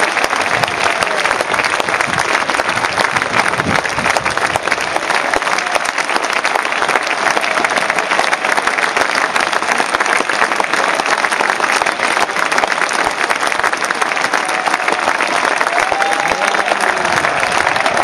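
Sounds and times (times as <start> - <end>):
crowd applauding: 0.0 - 18.0.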